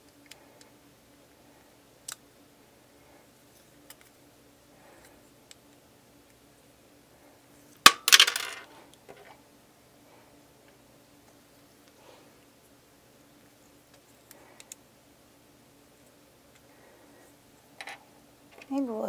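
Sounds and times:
pieces clattering on tabletop: 7.9s - 9.3s.

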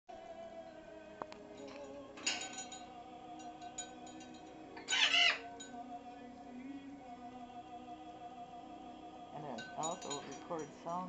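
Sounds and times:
background music: 0.1s - 11.0s
parrot squawking: 4.8s - 5.6s.

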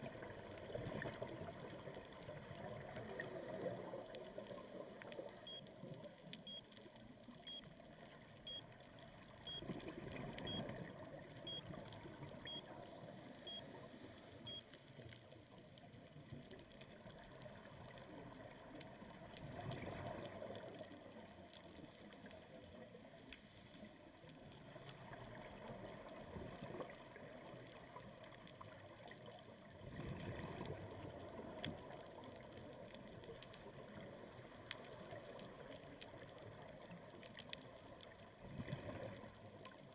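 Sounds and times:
water hiss: 2.8s - 5.6s, 12.8s - 15.0s, 33.4s - 35.8s
faint electronic beep: 5.2s - 5.7s, 6.4s - 6.7s, 7.4s - 7.7s, 8.4s - 8.7s, 9.4s - 9.7s, 10.4s - 11.8s, 12.4s - 14.9s
exhaled bubbles rushing: 29.8s - 31.0s.

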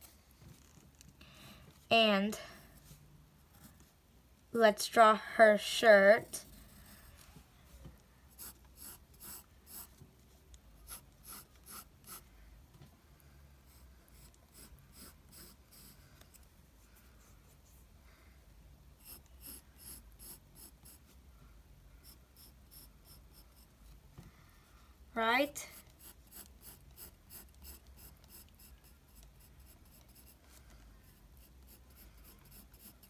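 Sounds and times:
pencil scratching on paper: 8.3s - 10.0s, 10.8s - 12.3s, 13.6s - 16.4s, 19.0s - 21.2s, 22.0s - 23.8s, 25.6s - 33.0s.

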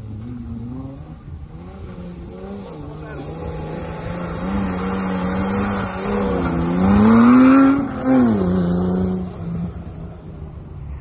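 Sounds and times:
buggy engine revving: 0.0s - 10.7s.

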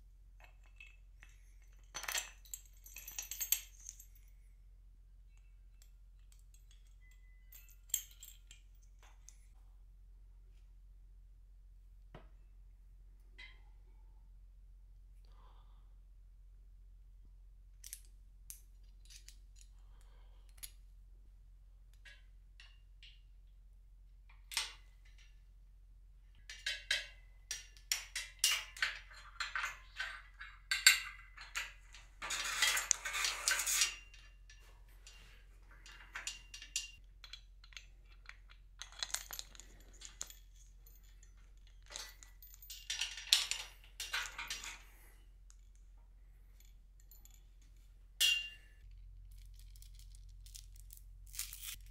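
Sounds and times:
metal hardware clinking: 5.8s - 9.4s, 26.4s - 51.9s.

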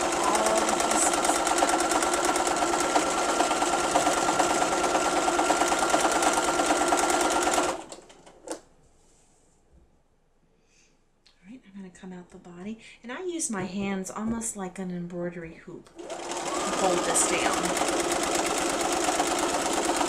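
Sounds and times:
sewing machine stitching: 0.0s - 8.6s, 15.9s - 20.0s.

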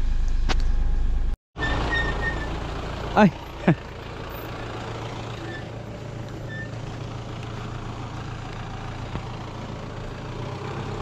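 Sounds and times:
car engine running at low revs: 0.0s - 11.0s.

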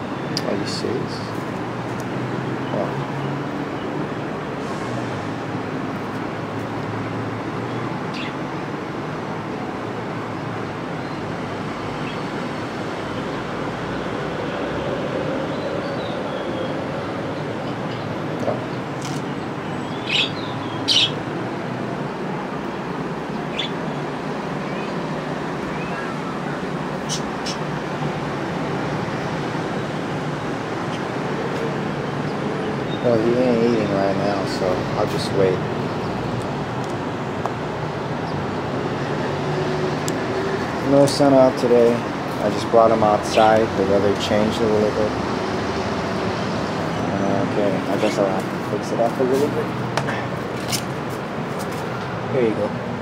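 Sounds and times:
outdoor rushing hum: 0.0s - 53.0s
parakeet chirps: 8.1s - 8.4s, 19.9s - 21.2s, 23.5s - 23.8s, 27.0s - 27.6s.

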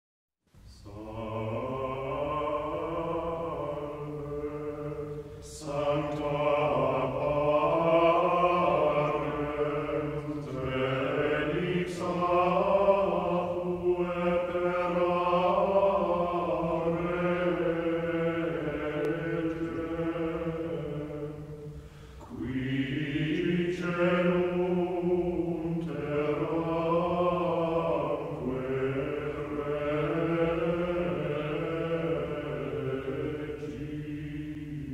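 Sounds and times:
chant-like sustained tones: 0.6s - 34.9s.

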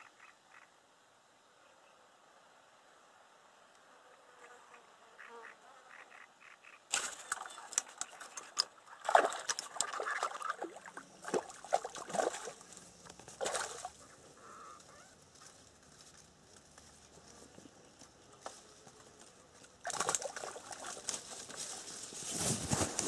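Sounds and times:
water splashing among reeds: 6.9s - 14.2s, 19.6s - 23.0s.

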